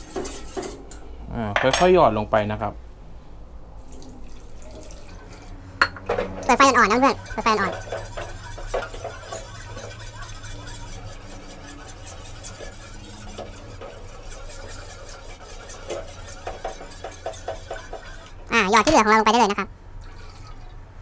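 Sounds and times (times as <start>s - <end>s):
metal spoon scraping saucepan: 0.0s - 1.0s, 5.9s - 19.5s.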